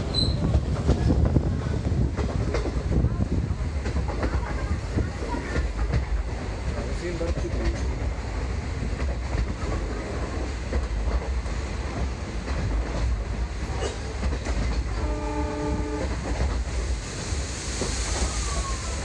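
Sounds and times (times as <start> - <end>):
train running low rumble: 0.0 - 19.0
locomotive horn: 14.9 - 16.2.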